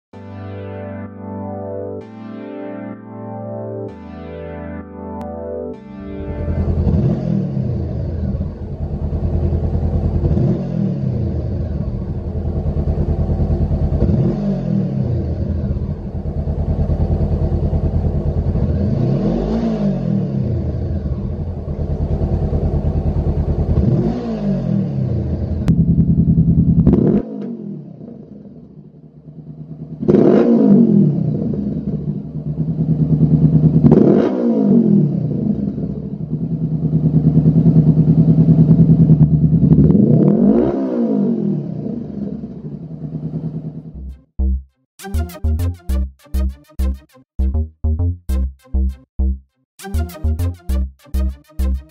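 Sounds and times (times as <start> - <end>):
motorcycle engine idling and revving: 6.3 - 44.6.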